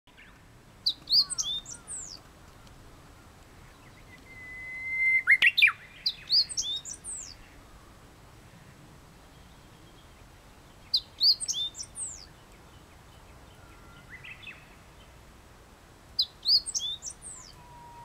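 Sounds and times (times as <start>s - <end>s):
small songbird twittering: 0.2s - 2.2s, 3.6s - 7.8s, 9.3s - 14.7s, 16.2s - 18.0s
warbler whistling song: 0.2s - 2.2s, 3.6s - 7.8s, 9.3s - 14.8s, 16.2s - 18.0s.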